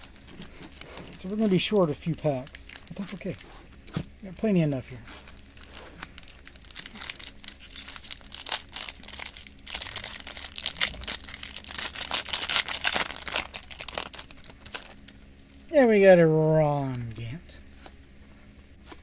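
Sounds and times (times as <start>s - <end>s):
wrapper crinkling: 0.0s - 3.6s, 5.1s - 15.8s
plastic wrap rustling: 0.0s - 15.9s.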